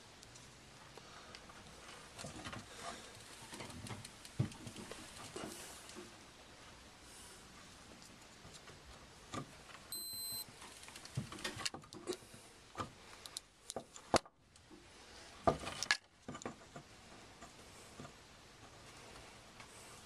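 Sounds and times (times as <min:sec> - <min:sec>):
short high electronic beep: 0:09.9 - 0:10.4.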